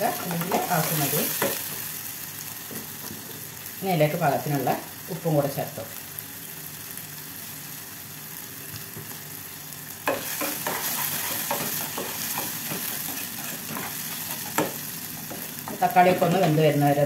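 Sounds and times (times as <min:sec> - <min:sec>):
vegetables sizzling in oil: 0:00.0 - 0:17.0
spatula scraping saucepan: 0:10.1 - 0:16.5.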